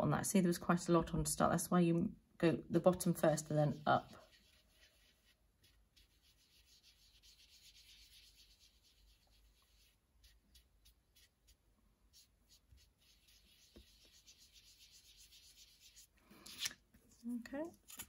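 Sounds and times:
sponge dauber brushing card: 2.8 - 17.2.

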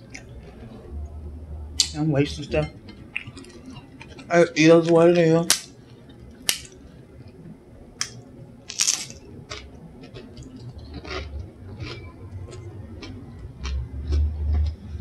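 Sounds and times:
tortilla chips crunching: 8.7 - 15.0.

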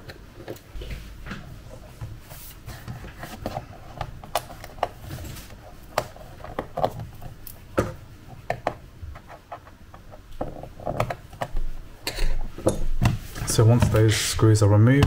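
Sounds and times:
fingertips tapping laptop case: 2.7 - 11.7.

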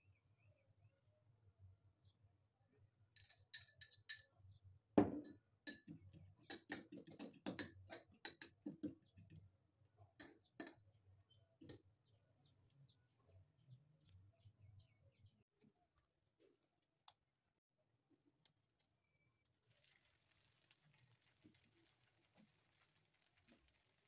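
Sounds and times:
utensil clinking against glass cup: 3.2 - 4.3, 5.0 - 9.4, 10.2 - 10.8.

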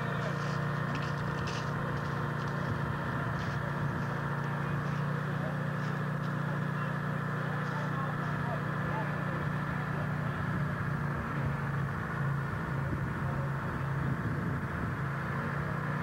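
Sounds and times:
people talking: 0.0 - 11.8, 12.7 - 14.6
crane engine running: 0.0 - 16.0.

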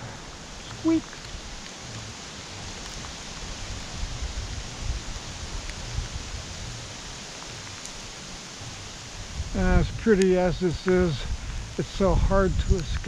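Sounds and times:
wind buffeting microphone: 0.0 - 7.7, 8.7 - 13.0
rain hissing: 0.0 - 13.0
faint ticks: 0.7 - 3.5.

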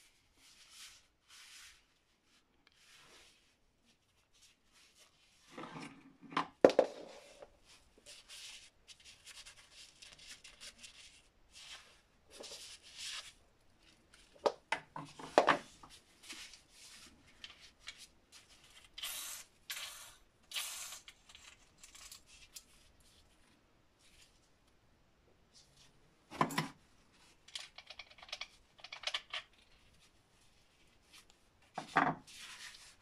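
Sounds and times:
gloves rubbing on plastic: 32.2 - 33.0.

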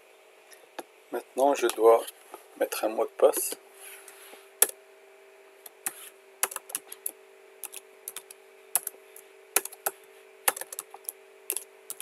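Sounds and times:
keyboard keystroke clicks: 6.4 - 7.0, 7.6 - 8.9, 9.6 - 12.0.

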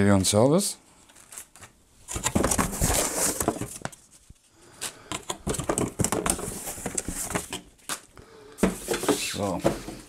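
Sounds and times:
cardboard box rustling and scraping: 2.1 - 4.1, 5.4 - 7.6, 8.6 - 10.0.

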